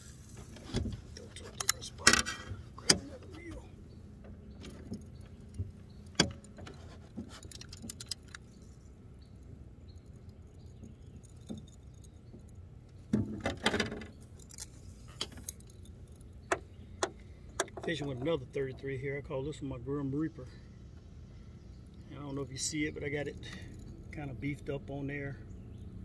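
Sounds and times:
metallic clicks of fishing tackle: 1.2s - 2.3s, 7.3s - 8.8s, 13.9s - 16.4s.

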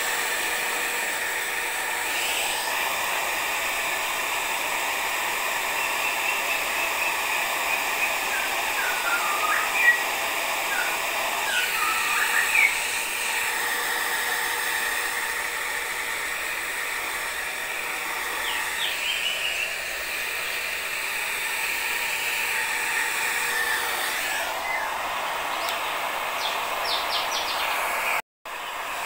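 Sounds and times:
hair dryer blowing: 0.0s - 29.0s.

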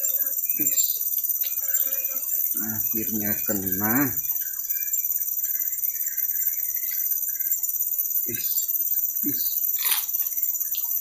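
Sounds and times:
insects droning: 0.0s - 11.0s
low wavering chirring: 0.0s - 11.0s.

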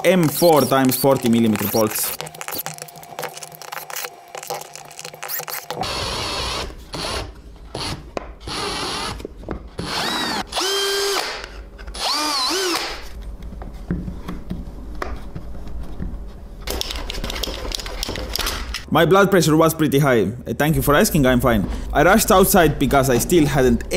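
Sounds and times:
cordless drill whining in bursts: 5.8s - 7.2s, 9.8s - 11.4s, 12.0s - 13.0s.

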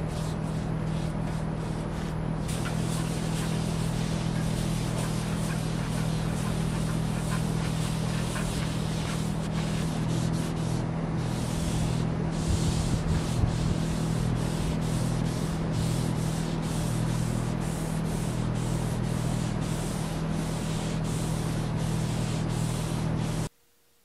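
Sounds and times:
pad scrubbing wooden tabletop: 0.0s - 23.5s
steady low hum: 0.0s - 24.0s.

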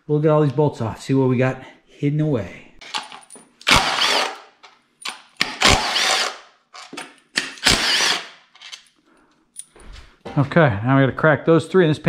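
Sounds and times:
impact tool whining: 2.9s - 4.5s, 5.4s - 8.4s.

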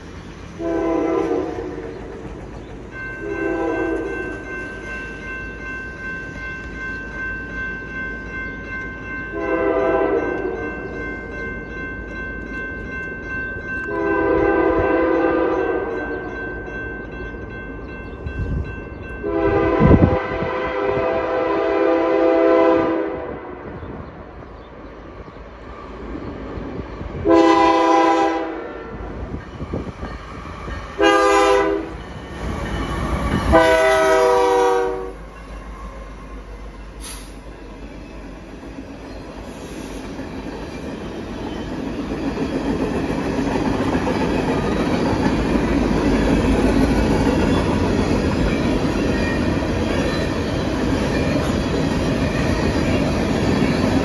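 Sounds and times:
train rumbling: 0.0s - 54.0s
locomotive air horn blasts: 0.6s - 1.9s, 3.2s - 4.2s, 9.3s - 10.6s, 13.9s - 16.0s, 19.2s - 23.6s, 27.2s - 29.0s, 31.0s - 32.0s, 33.5s - 35.2s.

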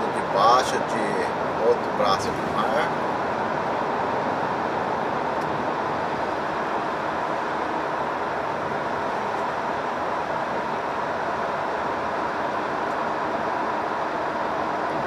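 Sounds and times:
truck road and engine noise: 0.0s - 15.0s.

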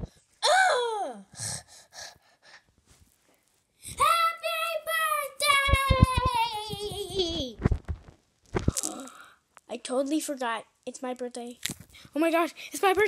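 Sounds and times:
child singing long high note: 3.9s - 7.0s.

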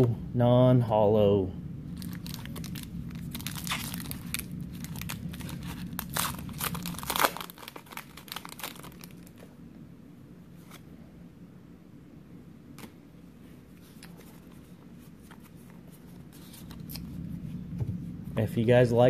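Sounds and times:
foil wrapper crinkling and tearing: 2.0s - 9.4s
cards rustling: 2.0s - 9.5s, 13.8s - 17.2s.

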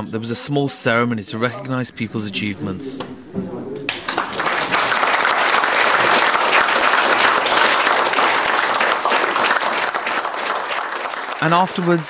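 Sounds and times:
group of people applauding: 3.8s - 12.0s.

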